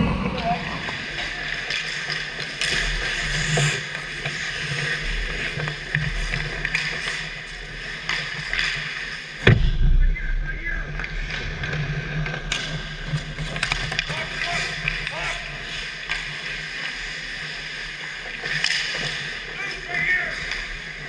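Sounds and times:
skate blades scraping ice: 0.9s - 9.4s, 11.1s - 21.0s
hockey sticks clacking: 1.1s - 9.4s, 10.9s - 21.0s
loud sharp knock: 9.4s - 10.3s.

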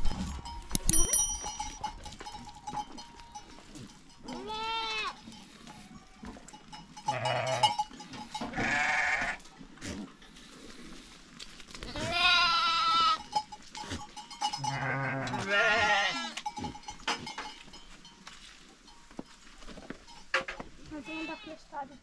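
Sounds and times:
young goats bleating: 4.3s - 5.2s, 7.1s - 7.7s, 8.5s - 9.4s, 11.8s - 13.2s, 14.6s - 16.4s, 21.0s - 21.8s.

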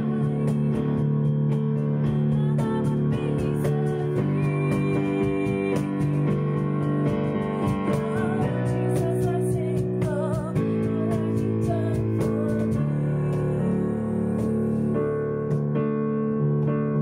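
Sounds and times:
woman singing with vibrato: 0.0s - 1.1s, 1.9s - 15.2s.

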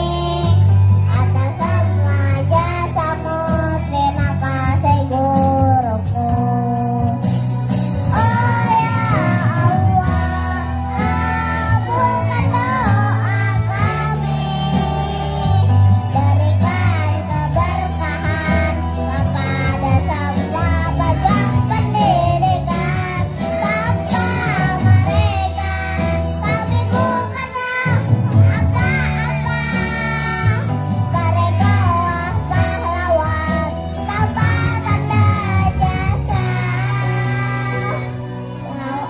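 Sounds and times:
backing track with bass line: 0.0s - 39.0s
children's choir singing: 8.2s - 39.0s.

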